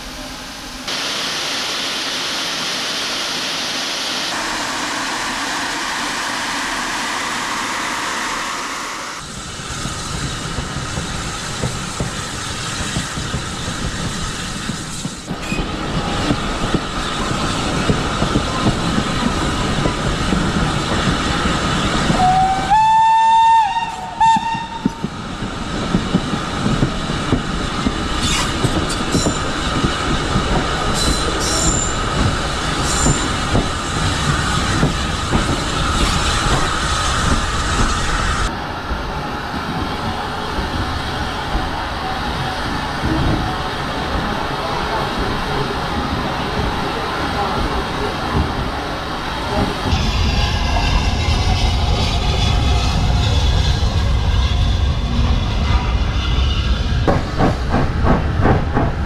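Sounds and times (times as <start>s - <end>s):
steam train running: 4.2s - 59.0s
steam whistle: 22.2s - 24.9s.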